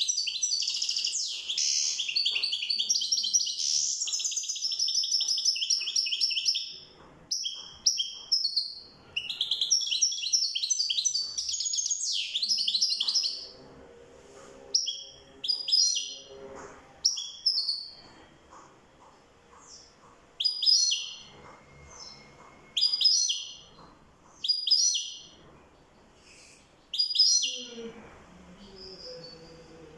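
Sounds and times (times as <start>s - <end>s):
goldfinch twittering song: 20.4s - 21.3s.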